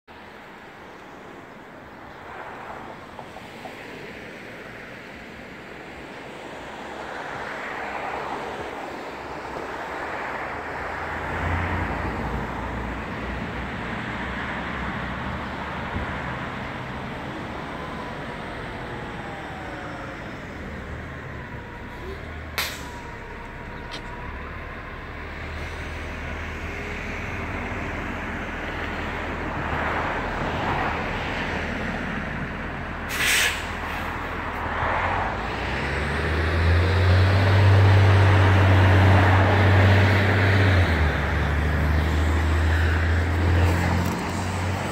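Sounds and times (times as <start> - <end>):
city traffic noise: 0.1 - 44.9
sharp click: 22.6 - 23.0.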